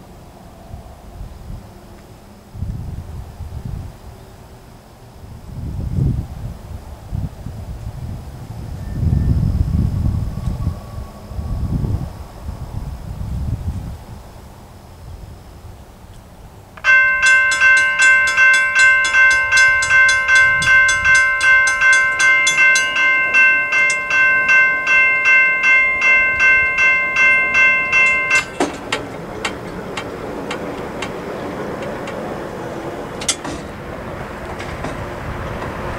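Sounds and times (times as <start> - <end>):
railroad crossing bells ringing: 16.8 - 35.9.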